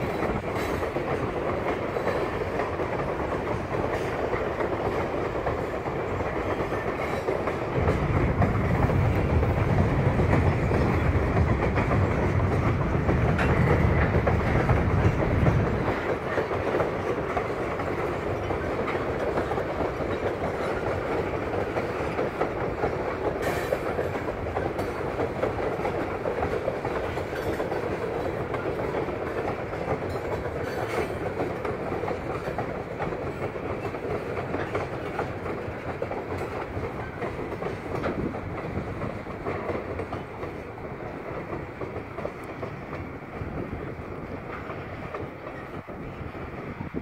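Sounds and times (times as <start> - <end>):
train wheels rumbling on bridge: 0.0 - 47.0.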